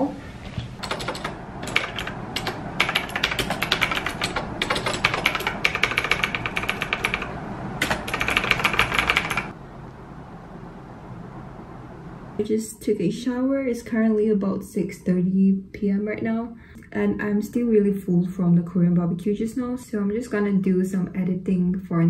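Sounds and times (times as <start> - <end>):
mechanical keyboard typing: 0.8 - 9.5.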